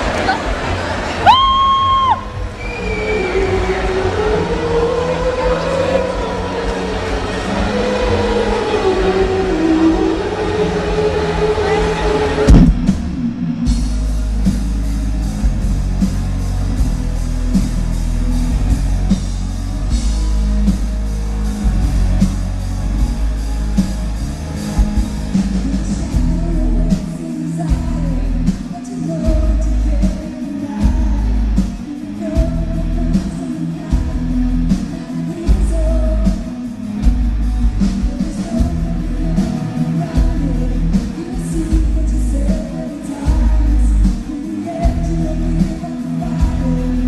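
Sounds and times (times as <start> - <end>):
woman singing lead vocal: 1.3 - 12.5, 25.5 - 47.0
metal band playing live: 3.2 - 47.0.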